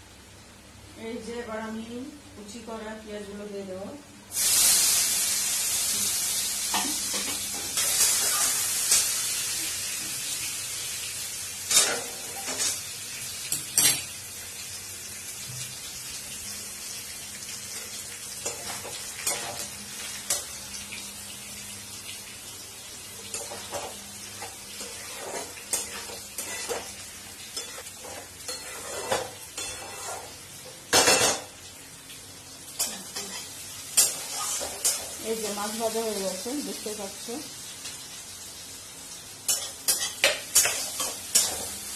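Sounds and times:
onions sizzling in oil: 4.2 - 41.9
metal spatula scraping a wok: 24.8 - 26.9, 27.6 - 30.3, 32.8 - 35.1.

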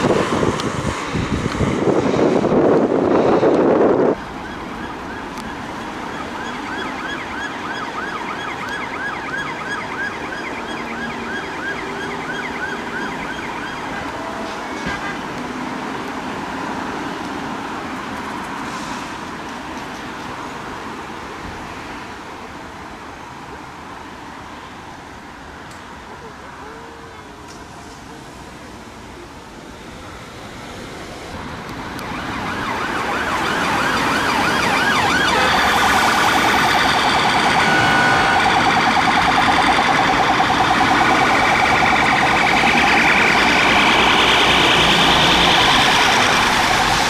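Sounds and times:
road traffic: 0.0 - 47.0
police siren yelping: 4.0 - 14.4, 32.0 - 47.0.

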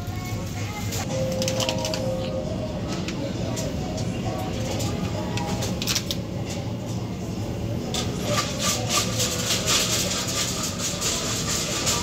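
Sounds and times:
low background hum: 0.0 - 12.0
shopping trolley rattling on tiles: 7.9 - 12.0.

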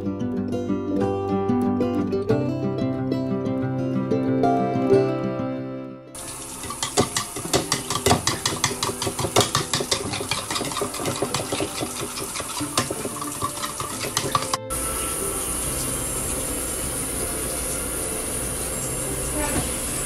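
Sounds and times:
plucked-string background music: 0.0 - 19.5
spoon beating eggs in a bowl: 6.2 - 14.7.

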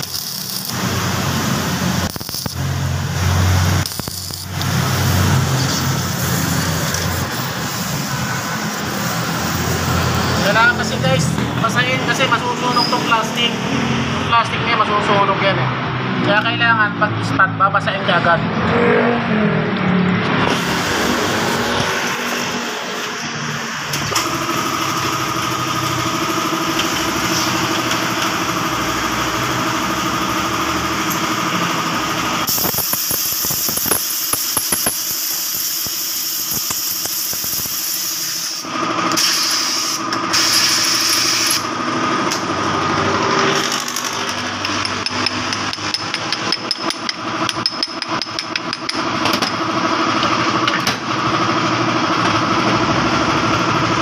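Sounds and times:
machine hum: 0.0 - 14.7, 18.5 - 32.5
hiss: 32.5 - 41.5
metal taps and knocks: 44.4 - 49.6.

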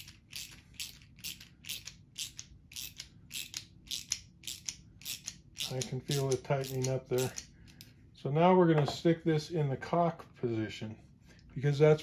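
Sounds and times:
ratchet clicking: 0.0 - 7.8.

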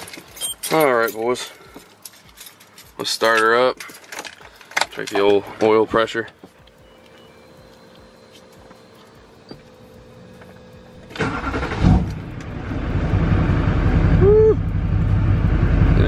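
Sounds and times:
diesel engine idling: 6.6 - 16.0
diesel engine starter cranking: 9.4 - 13.8.

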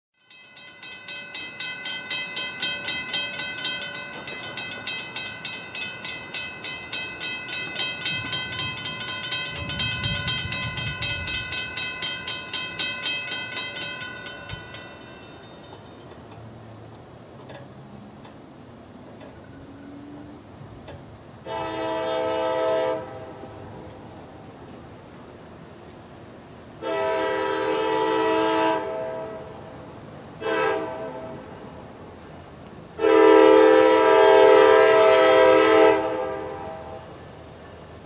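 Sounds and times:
railroad crossing bell ringing: 0.2 - 16.4, 17.4 - 25.8.

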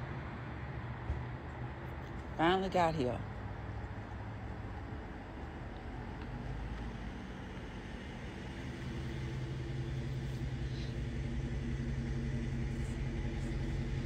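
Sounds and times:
car engine running: 3.4 - 14.0.

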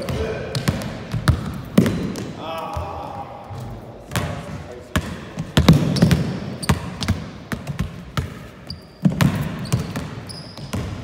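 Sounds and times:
basketball bouncing on hardwood: 0.0 - 2.2, 4.1 - 8.4, 9.0 - 11.0
sneaker squeaks: 5.7 - 7.2, 7.8 - 11.0.

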